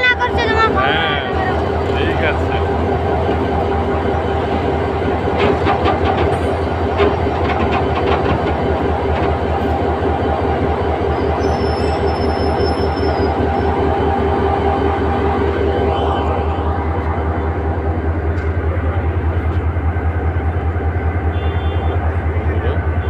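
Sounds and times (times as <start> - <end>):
diesel locomotive engine droning: 0.0 - 23.0
wheel clicks over rail joints: 5.3 - 9.8.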